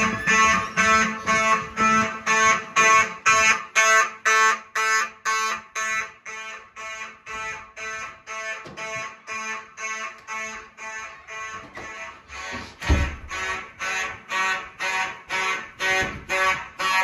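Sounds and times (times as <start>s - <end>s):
pulsed fire alarm: 0.0s - 17.0s.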